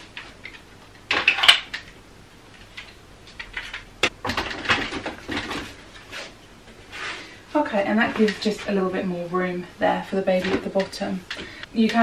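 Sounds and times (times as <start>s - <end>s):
plastic rustling clatter: 3.4s - 6.2s.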